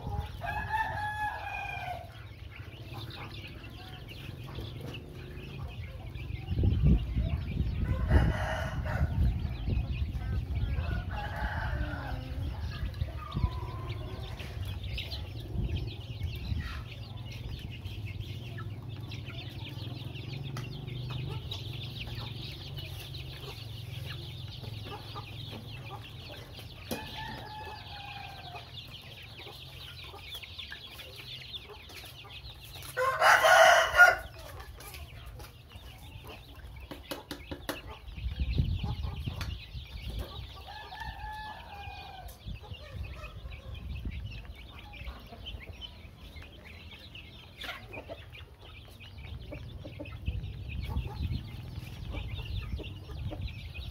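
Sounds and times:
young chickens clucking: 0.0s - 53.9s.

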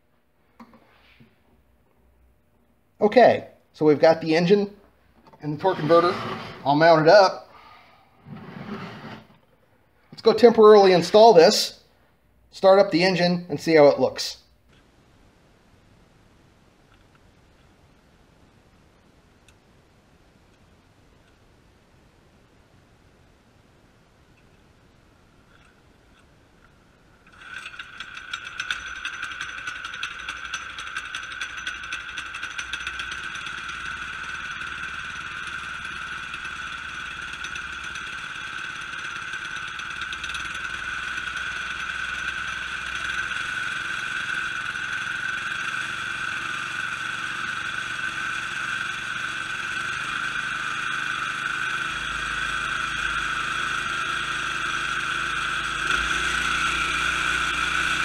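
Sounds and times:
small engine pull-started: 5.4s - 7.2s, 27.3s - 58.0s.

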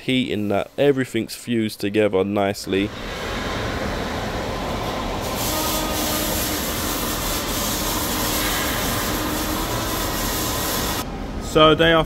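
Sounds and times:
extractor fan rushing: 2.7s - 11.5s.

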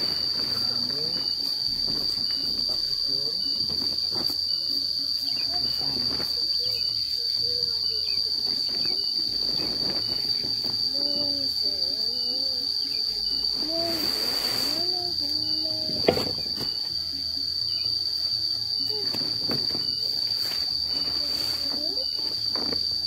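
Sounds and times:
plastic tarpaulin rustling: 0.0s - 4.4s, 8.4s - 11.0s, 19.0s - 23.0s
insects buzzing: 0.0s - 23.0s.

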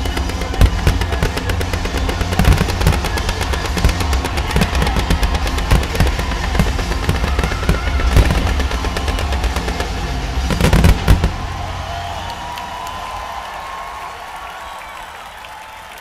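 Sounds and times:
fireworks cracks and booms: 0.0s - 13.4s
music: 0.0s - 16.0s.

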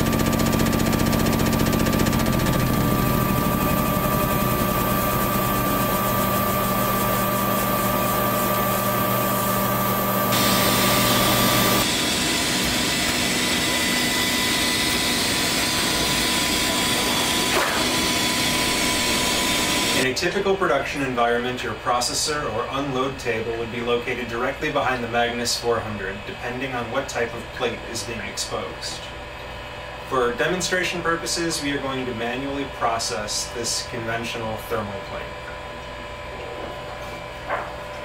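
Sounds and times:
held machine tones: 0.0s - 20.0s
machine drum humming: 0.0s - 20.0s.

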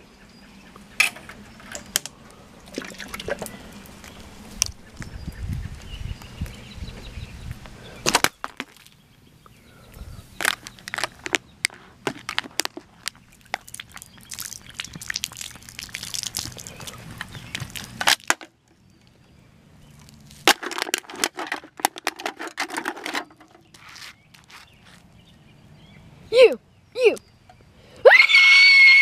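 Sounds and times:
aluminium can crumpling: 10.4s - 18.4s, 20.0s - 25.0s.

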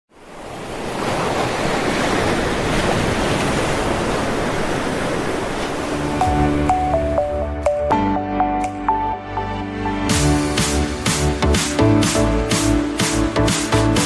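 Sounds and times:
ocean surf washing: 0.1s - 8.4s
music with bass line: 6.2s - 14.0s.

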